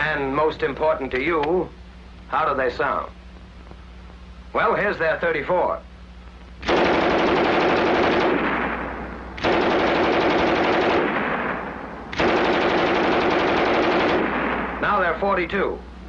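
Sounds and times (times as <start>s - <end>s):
machine gun automatic fire: 6.6s - 15.0s.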